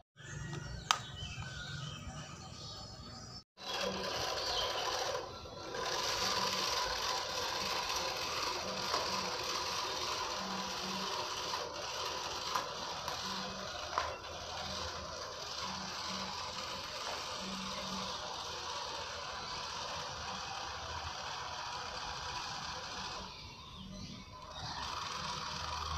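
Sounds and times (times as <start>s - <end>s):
toy truck electric motor running: 0.2s - 25.9s
sharp clicks: 0.5s - 1.6s
wheels over dirt and gravel: 3.6s - 25.9s.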